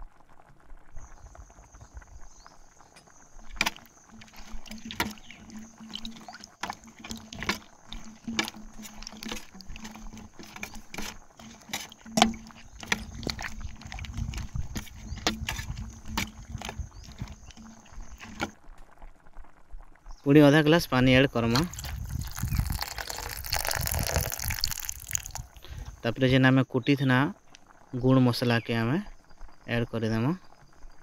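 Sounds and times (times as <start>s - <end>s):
wooden spatula scraping a pan: 3.4s - 18.6s.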